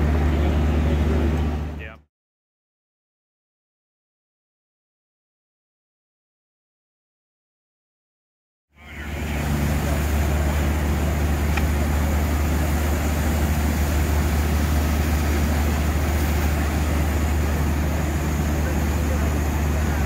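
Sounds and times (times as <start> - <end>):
fire engines droning: 0.0 - 2.0, 8.8 - 20.0.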